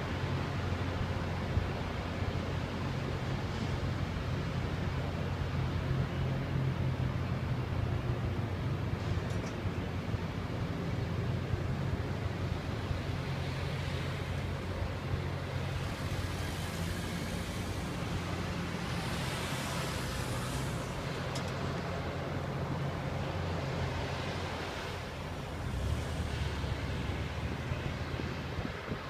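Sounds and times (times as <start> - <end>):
diesel engines droning: 0.0 - 29.0
grinding stones hissing on rails: 15.6 - 21.6.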